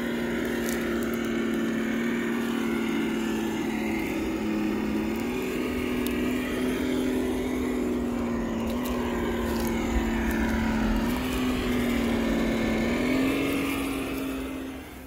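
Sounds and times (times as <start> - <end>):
motor running steadily: 0.0 - 15.0.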